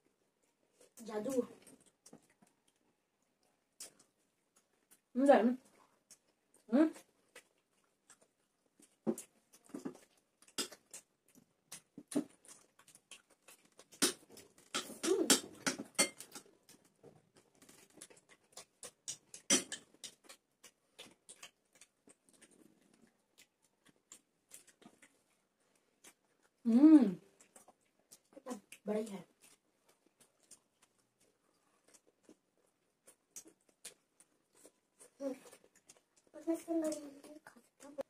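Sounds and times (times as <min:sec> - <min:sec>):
wet chewing and lip smacks: 0:01.6 - 0:05.1, 0:05.7 - 0:15.0, 0:16.2 - 0:26.6, 0:27.2 - 0:37.9.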